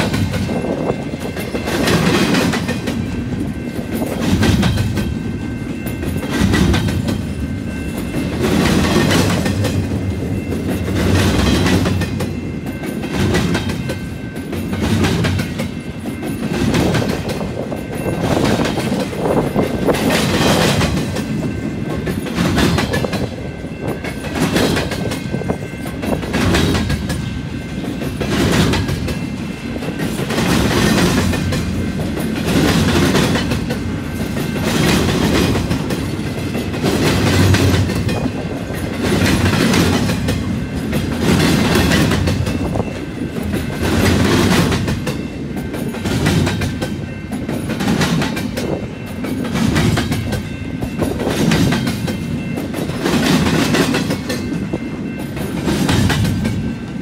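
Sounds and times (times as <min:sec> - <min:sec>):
freight train wheels clattering: 0:00.0 - 0:57.0.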